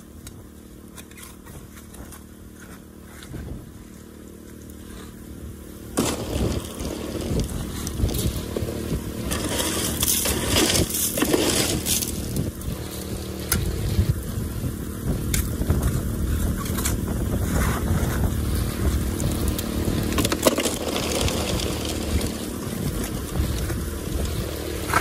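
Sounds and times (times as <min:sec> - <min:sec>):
gravel clicks: 0:00.0 - 0:25.0
water pump engine running: 0:00.0 - 0:25.0
water washing through sluice: 0:06.0 - 0:25.0.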